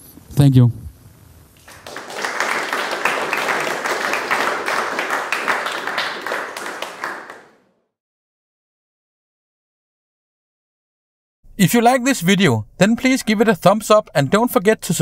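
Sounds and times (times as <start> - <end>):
audience applauding: 1.6 - 7.7.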